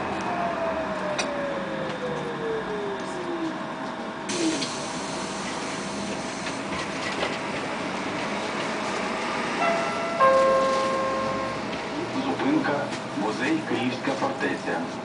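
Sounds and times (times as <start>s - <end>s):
road and cabin noise: 0.0s - 15.0s
two-note electronic chime: 9.6s - 11.6s.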